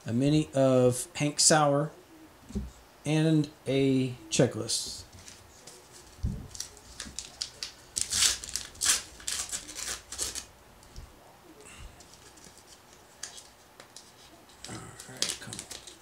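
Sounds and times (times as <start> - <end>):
rustling of cards: 5.1 - 11.0, 11.8 - 16.0
paper wrapper tearing: 6.5 - 10.5.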